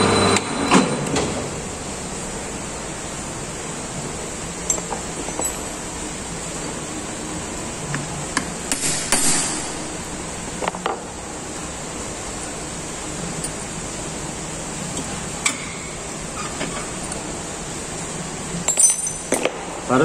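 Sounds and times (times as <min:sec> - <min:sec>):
metal clinks and knocks: 0:04.6 - 0:05.8, 0:18.6 - 0:19.5.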